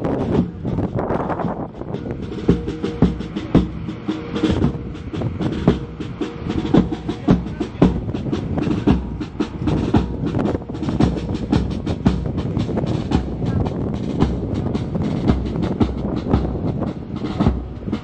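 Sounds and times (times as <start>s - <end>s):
drum striking a steady beat: 0.0s - 18.0s
marching band playing: 0.0s - 18.0s.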